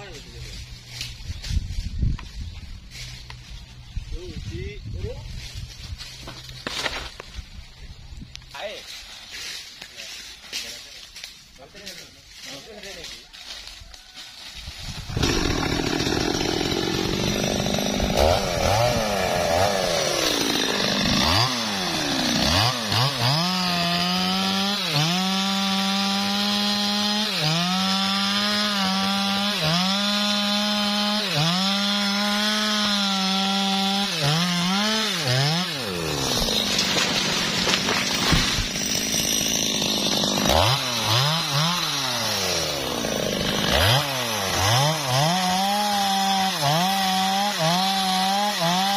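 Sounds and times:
chainsaw cutting wood: 0:06.2 - 0:07.4, 0:14.9 - 0:48.9.

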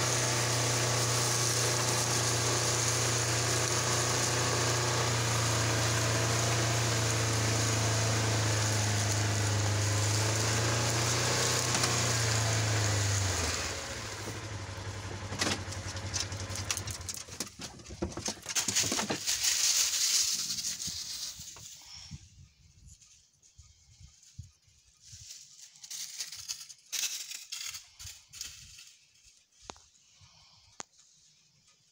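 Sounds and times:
crackling in dry leaves: 0:00.0 - 0:17.4, 0:18.3 - 0:22.0, 0:25.0 - 0:30.2
buggy engine running: 0:00.0 - 0:21.5.

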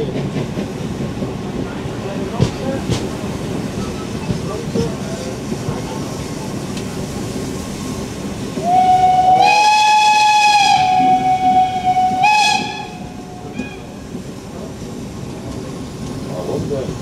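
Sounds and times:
train rumble: 0:00.0 - 0:17.0
steam whistle blast: 0:08.6 - 0:13.7.

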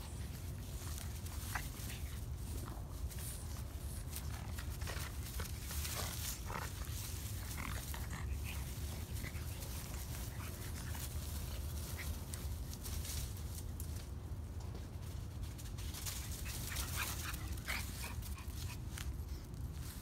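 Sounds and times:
puppies growling: 0:05.6 - 0:11.1.

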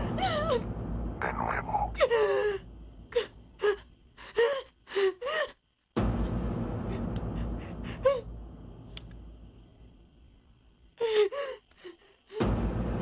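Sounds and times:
low rumbling horror sting: 0:00.0 - 0:03.5, 0:06.0 - 0:10.2.

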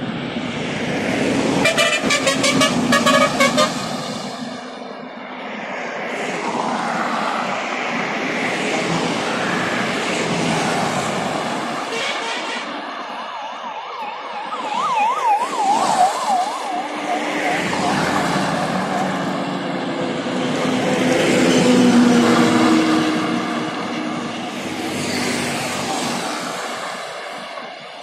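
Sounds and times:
highway traffic passing: 0:00.0 - 0:28.0
truck engine and tyres passing: 0:00.0 - 0:28.0
warbling siren-like tone: 0:13.0 - 0:19.1.

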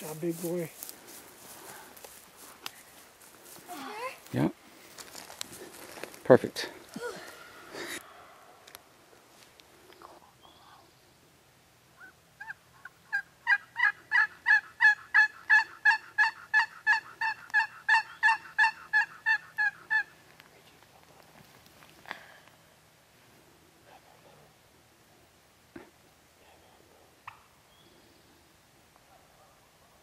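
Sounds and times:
turkey call yelps: 0:12.0 - 0:20.1.

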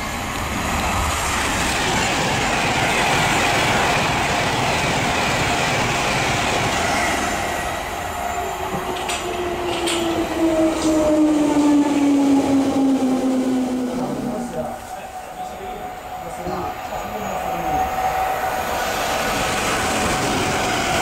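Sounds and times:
train wheels and air rushing: 0:00.0 - 0:21.0
train whine falling in pitch: 0:07.1 - 0:17.9.

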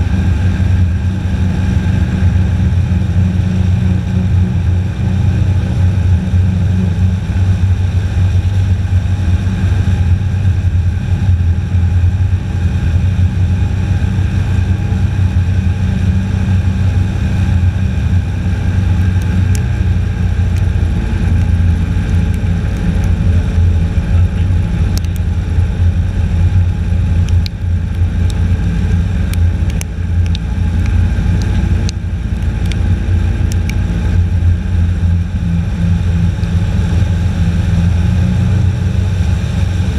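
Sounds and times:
airboat engine and propeller: 0:00.0 - 0:39.9
sharp ticks: 0:27.2 - 0:28.5, 0:29.2 - 0:33.8.

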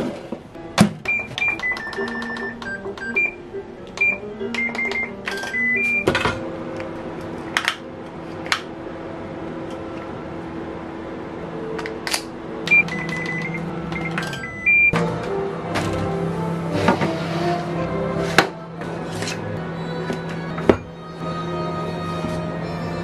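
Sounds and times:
soft background music: 0:00.6 - 0:23.0
microwave keypad beeps: 0:01.0 - 0:03.4, 0:04.0 - 0:06.2, 0:12.7 - 0:15.0.

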